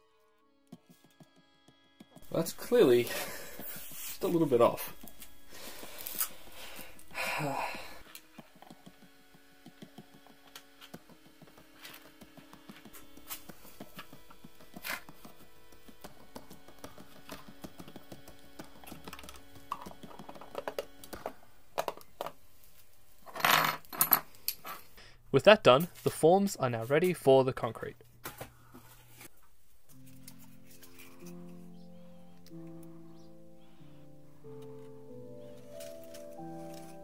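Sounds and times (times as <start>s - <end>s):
plastic parts clicking and tapping: 8.1s - 22.4s
parts clattering: 23.2s - 25.0s
soft background music: 29.8s - 37.0s.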